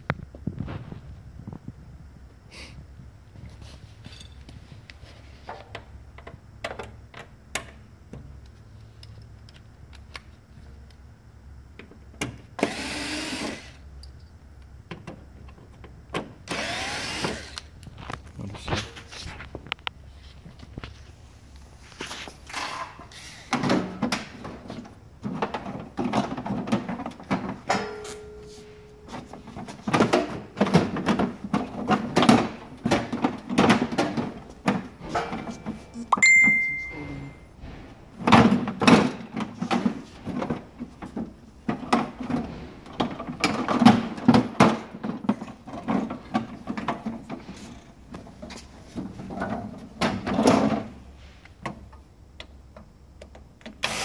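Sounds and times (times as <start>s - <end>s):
short ringing ding: 27.8s - 29.0s, 36.1s - 37.5s.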